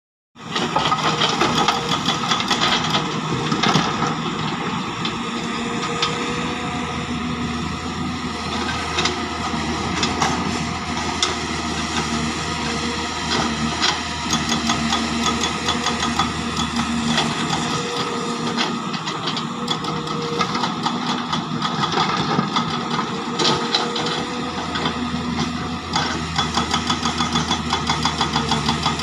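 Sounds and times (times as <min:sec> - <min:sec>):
diesel engines running: 0:00.4 - 0:29.0.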